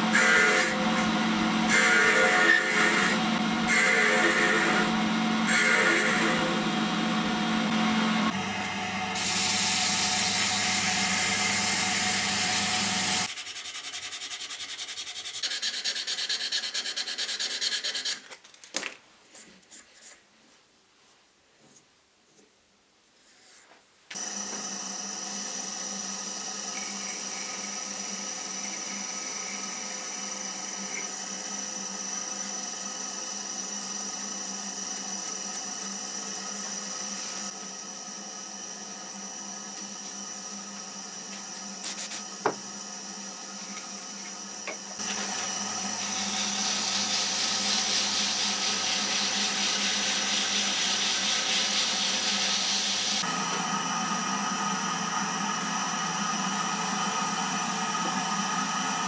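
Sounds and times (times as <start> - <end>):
wood lathe motor whine: 0.0 - 13.3, 24.1 - 41.8, 42.4 - 59.0
sanding hiss: 9.2 - 18.1, 46.0 - 53.3.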